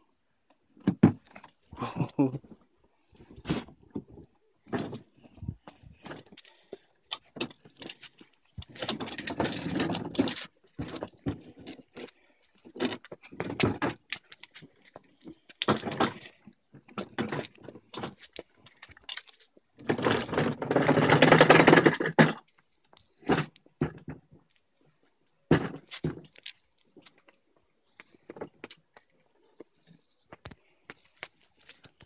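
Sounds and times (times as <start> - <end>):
plastic wheels rattling over paving: 3.6 - 24.5.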